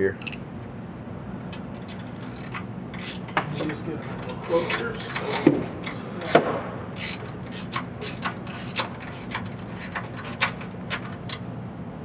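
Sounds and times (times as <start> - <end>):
hand ratchet clicking: 0.2 - 0.4.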